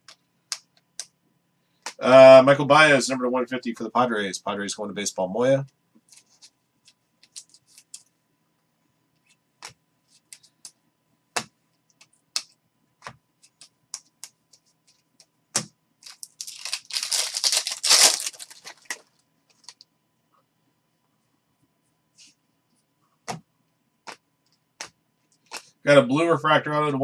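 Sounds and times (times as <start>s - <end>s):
cards being flipped: 7.2s - 8.1s
wrapper tearing and crinkling: 16.0s - 19.8s.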